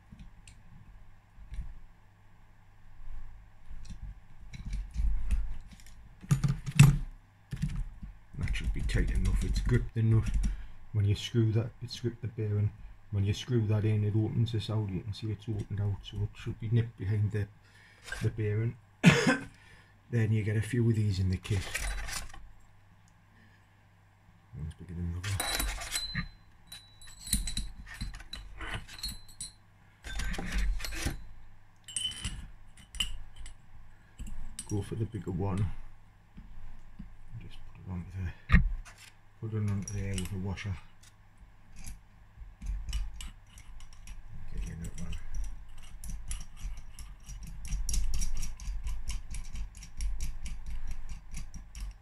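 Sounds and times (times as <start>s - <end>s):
steel tubes clinking and scraping: 25.2s - 33.6s.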